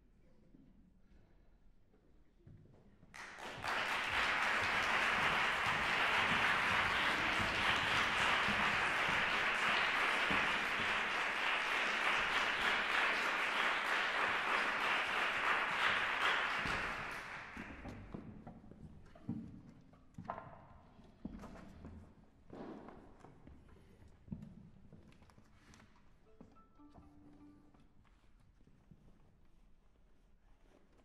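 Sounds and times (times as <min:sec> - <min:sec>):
audience applauding: 0:03.2 - 0:18.1.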